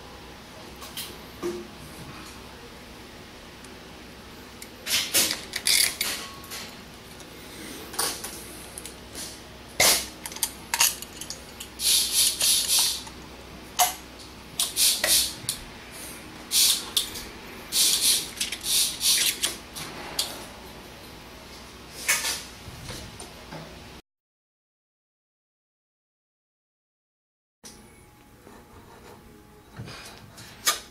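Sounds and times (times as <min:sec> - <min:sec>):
metal mechanism clicking and rattling: 0:04.9 - 0:06.2, 0:10.2 - 0:11.7.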